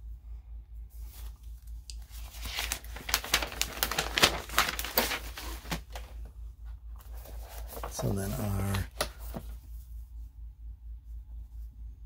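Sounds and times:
paper crinkling and rustling: 1.1 - 6.3, 7.0 - 9.6.

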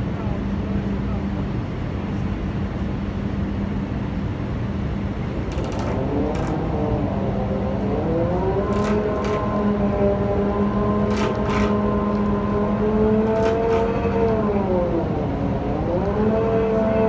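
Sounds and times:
machinery hum: 0.0 - 17.0
motor whine climbing in pitch: 4.8 - 17.0.

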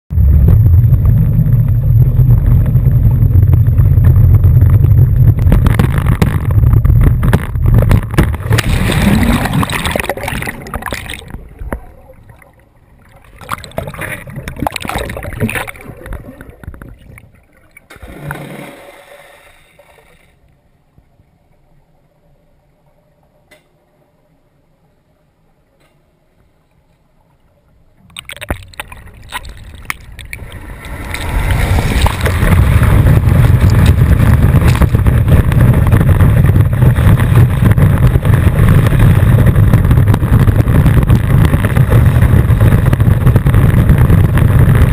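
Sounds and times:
water splashing and bubbling: 0.1 - 20.4, 28.0 - 44.9
muffled underwater hush: 0.1 - 20.6
boat engine rumble: 0.1 - 44.9.

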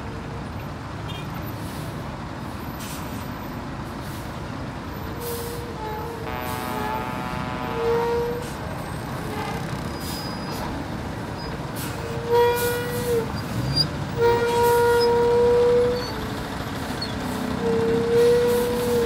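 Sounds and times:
bus engines running: 0.0 - 19.0
vehicle horn blasts: 6.1 - 8.6, 14.1 - 16.0.

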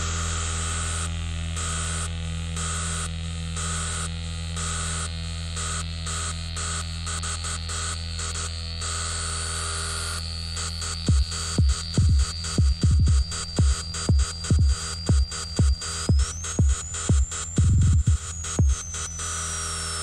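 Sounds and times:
low electronic drone: 9.9 - 20.0
electronic kick drums: 11.1 - 19.2
stuttering static bursts: 11.1 - 20.0.

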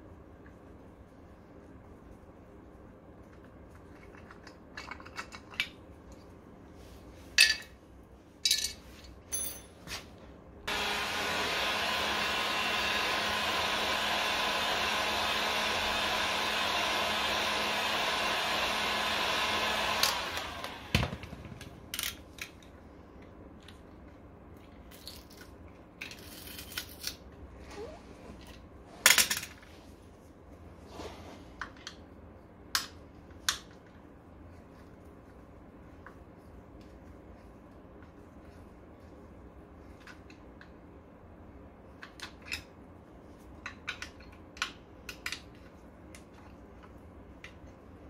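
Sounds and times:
small electric motor whirring: 10.7 - 21.0.

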